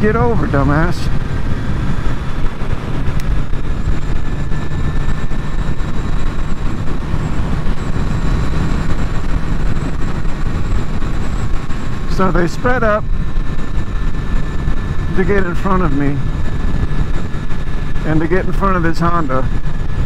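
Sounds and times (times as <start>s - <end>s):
motorcycle engine drone: 0.0s - 20.0s
wind rush on microphone: 0.0s - 20.0s.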